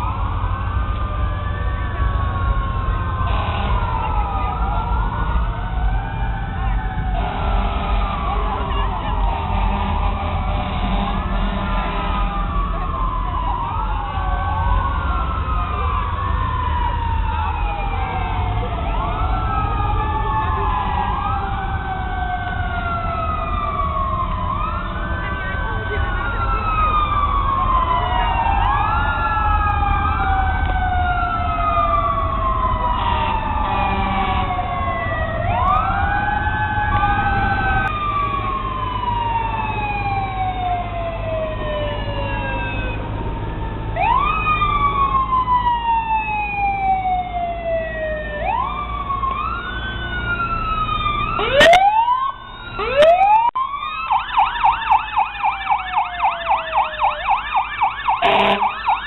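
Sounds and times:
sirens wailing: 0.0s - 59.0s
truck engines rumbling: 0.0s - 59.0s
siren fast yelp: 11.7s - 43.0s, 44.0s - 59.0s.

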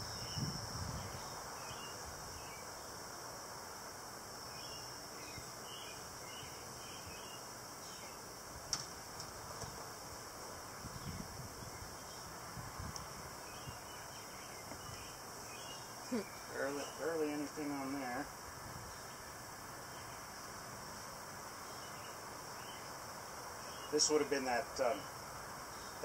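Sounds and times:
insect drone: 0.0s - 26.0s.

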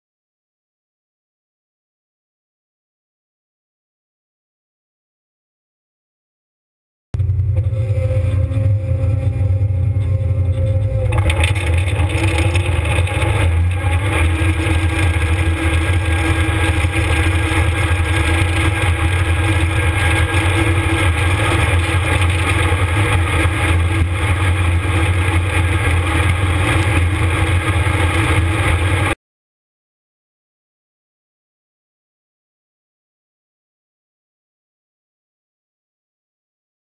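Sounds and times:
combine harvester droning: 7.2s - 29.2s.

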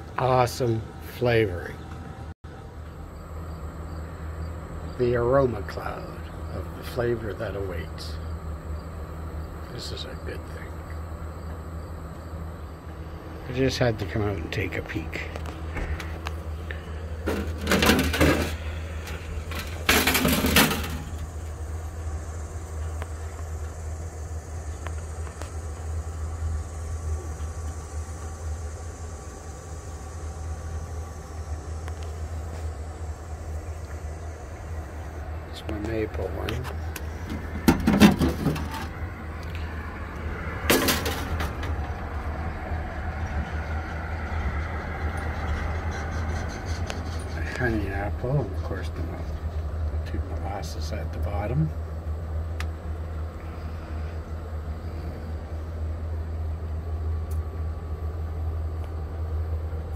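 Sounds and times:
steady low rumble: 0.0s - 59.9s
sheet metal scraping and rattling: 17.2s - 21.3s, 37.0s - 39.0s.

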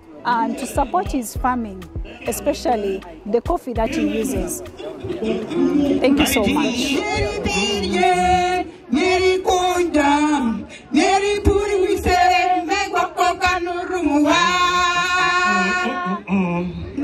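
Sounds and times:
group of women singing: 0.3s - 1.4s, 2.1s - 16.4s
woman singing into a microphone: 5.8s - 16.2s.

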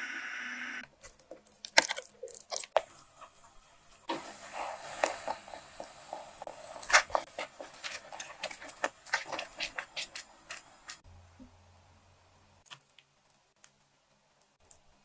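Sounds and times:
spatula scraping and stirring: 1.0s - 11.0s.

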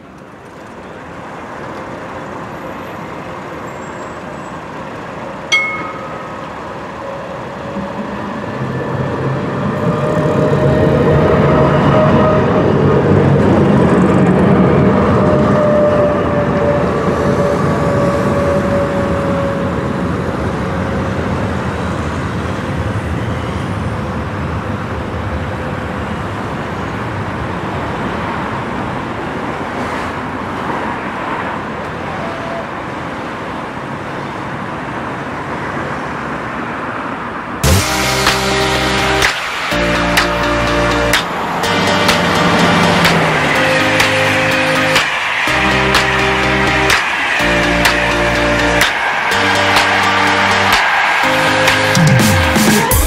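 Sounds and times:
street traffic noise: 0.0s - 53.0s
tram passing with whine: 0.0s - 53.0s.

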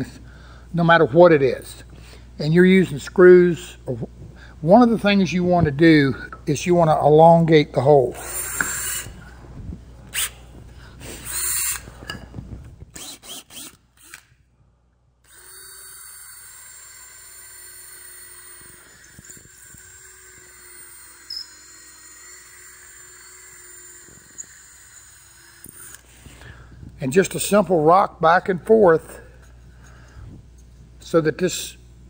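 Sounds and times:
cordless drill whining: 8.1s - 9.3s, 10.1s - 10.4s, 11.0s - 12.2s, 12.9s - 14.3s, 15.2s - 26.2s.

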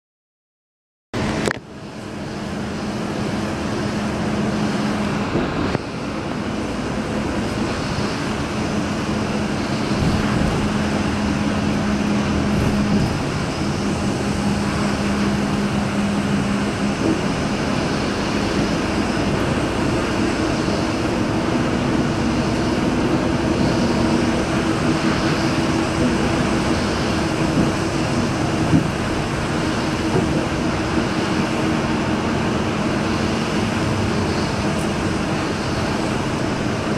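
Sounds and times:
vehicle engines running: 1.2s - 36.9s.

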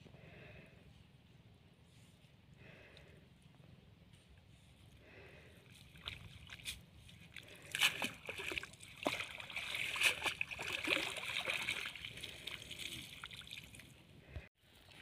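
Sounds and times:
water splashing and sloshing: 5.6s - 15.0s.

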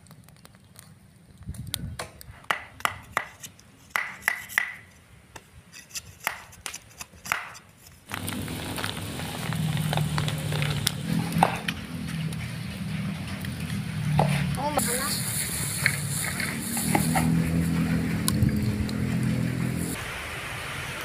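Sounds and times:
wood fire crackles: 0.0s - 4.2s, 6.6s - 20.2s
bubbling boiling wok: 8.1s - 21.0s.

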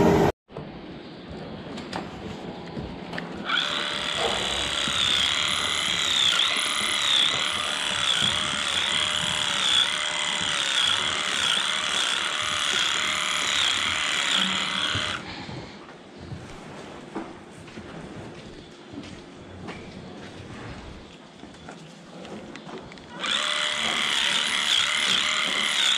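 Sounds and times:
electric clipper running: 3.4s - 15.2s, 23.1s - 25.9s.

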